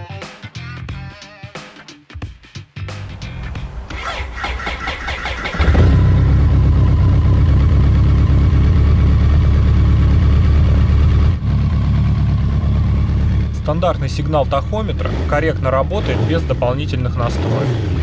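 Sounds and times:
motorcycle engine idling: 3.6 - 18.0
motorcycle engine starter cranking: 3.9 - 6.5.

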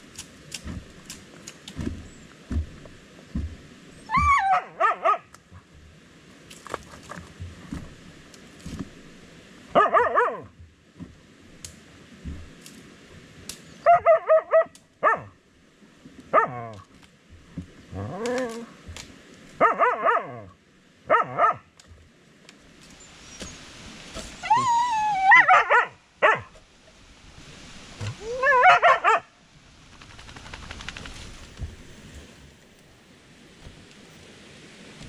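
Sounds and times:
soft dull knocks: 1.8 - 3.7
dog barking and yelping: 4.1 - 5.3, 9.8 - 10.5, 13.8 - 15.3, 16.3 - 16.8, 19.6 - 20.5, 21.1 - 21.6, 24.4 - 26.5, 28.2 - 29.3.

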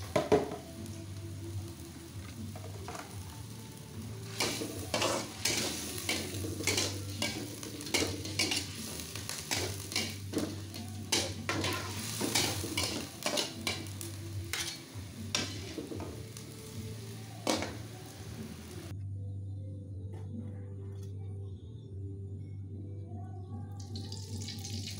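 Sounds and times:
squid sizzling in a wok: 0.0 - 18.9, 24.0 - 24.9
metal utensils scraping a pan: 4.2 - 16.1.

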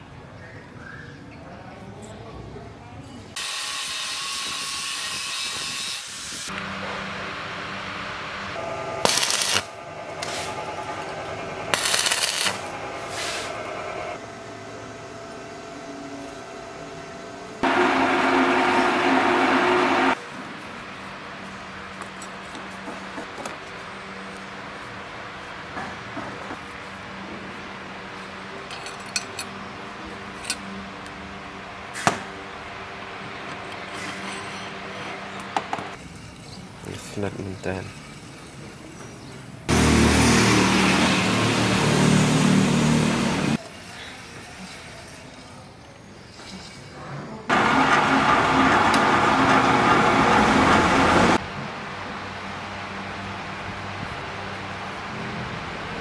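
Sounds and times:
arc welding crackling hiss: 9.0 - 10.6, 11.7 - 13.6
steel parts clinking: 9.0 - 13.1, 28.6 - 29.6, 30.2 - 30.8, 33.4 - 39.2.

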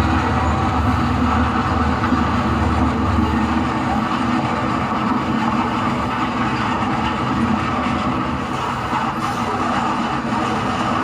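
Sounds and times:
model train running on track: 0.0 - 11.0.

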